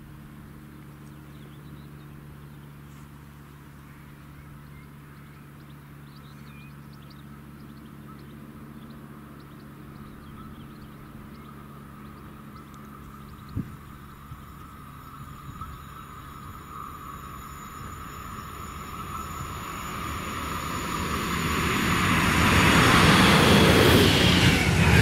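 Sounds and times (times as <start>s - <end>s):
electric locomotive hum: 0.0s - 25.0s
birds chirping: 1.0s - 25.0s
thin whine: 9.7s - 25.0s.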